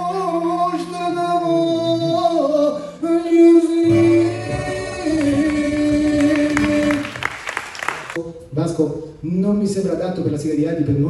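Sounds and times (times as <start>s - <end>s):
person singing long notes: 3.2s - 7.3s
live band playing: 3.9s - 8.2s.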